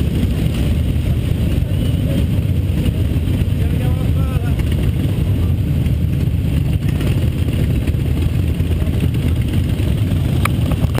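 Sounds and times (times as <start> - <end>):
motorcycle engines idling: 0.0 - 11.0.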